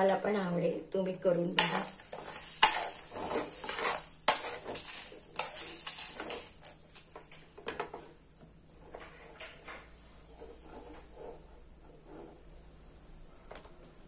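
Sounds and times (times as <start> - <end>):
metal skimmer scraping on pan: 1.6 - 6.8.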